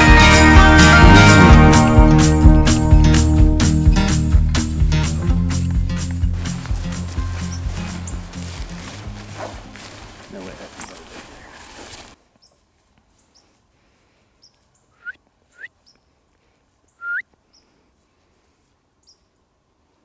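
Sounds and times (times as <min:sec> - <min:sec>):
music: 0:00.0 - 0:10.2
small birds chirping: 0:04.6 - 0:18.0, 0:18.9 - 0:19.5.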